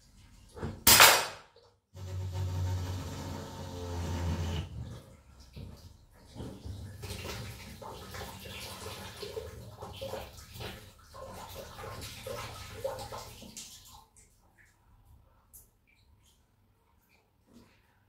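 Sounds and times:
water splashing into tray: 0:04.8 - 0:14.8.

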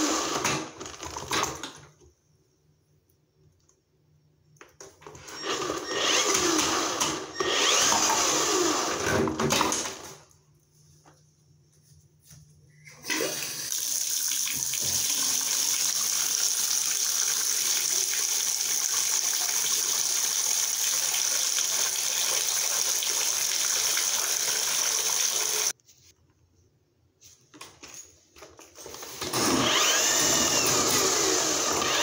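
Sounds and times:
water running into bathtub: 0:13.1 - 0:25.8.

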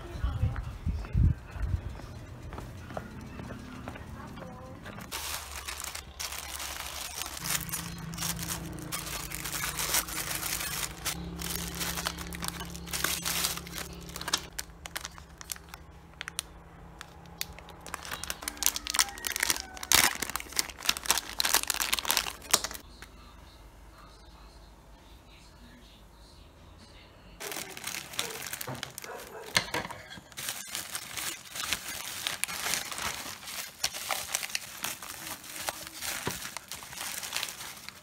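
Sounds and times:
plastic bags crinkling and tearing: 0:05.0 - 0:22.8, 0:27.4 - 0:38.0.

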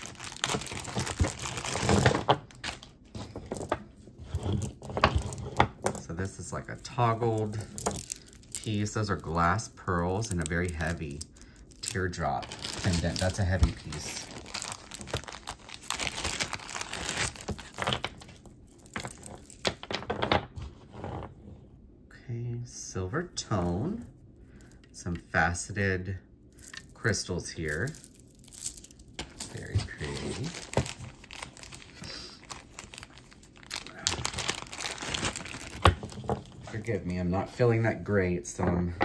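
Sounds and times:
wrapping rustling: 0:00.0 - 0:20.0, 0:26.6 - 0:37.7.

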